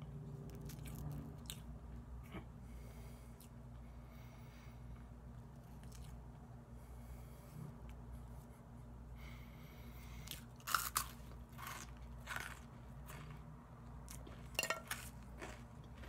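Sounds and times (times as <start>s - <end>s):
soft chewing: 0.2s - 16.0s
person crunching toast: 10.2s - 16.0s.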